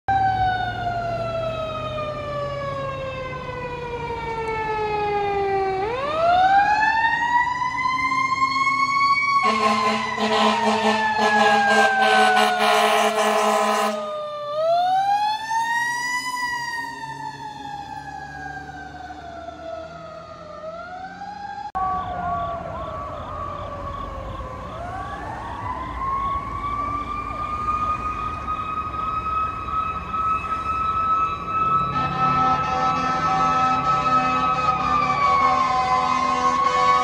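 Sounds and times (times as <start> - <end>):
siren wailing and yelping: 0.1 - 37.0
fire truck horn blast: 9.4 - 14.1, 31.8 - 37.0.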